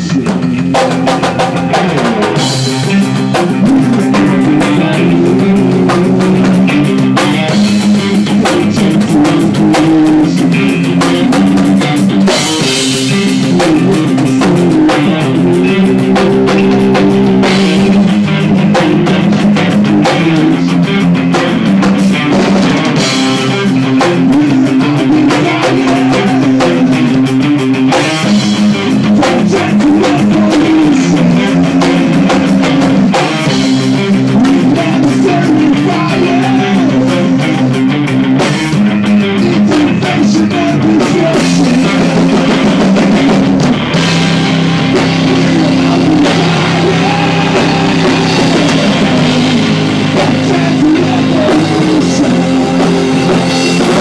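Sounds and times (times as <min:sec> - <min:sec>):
drum kit: 0:00.0 - 0:54.0
electric guitar: 0:00.0 - 0:54.0.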